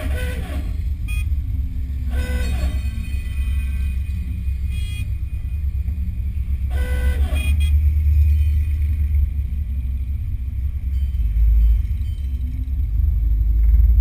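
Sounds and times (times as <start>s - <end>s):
car horn honking: 0.0s - 1.4s, 2.0s - 4.0s, 4.6s - 5.4s, 6.6s - 8.4s
low rumble of slow driving: 0.0s - 14.0s
short high beep: 1.0s - 1.4s, 2.2s - 5.2s.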